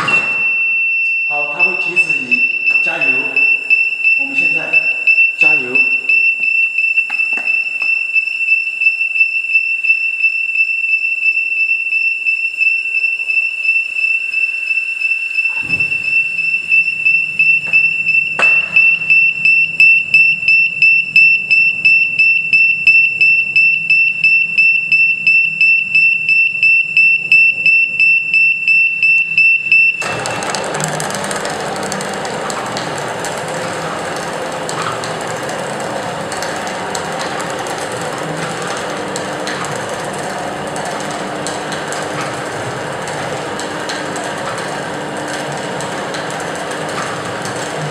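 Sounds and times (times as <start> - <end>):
high rapid buzzer beeping: 0.0 - 7.0, 14.6 - 30.4.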